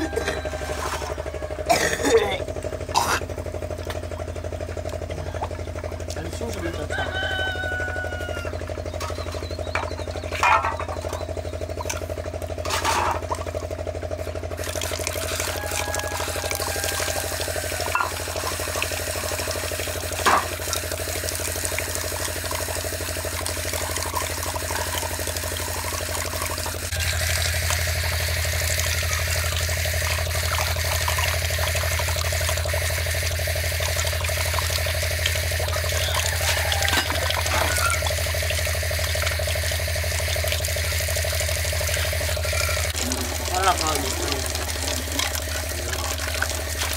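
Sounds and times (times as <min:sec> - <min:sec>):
water splashing onto concrete: 0:14.4 - 0:46.9.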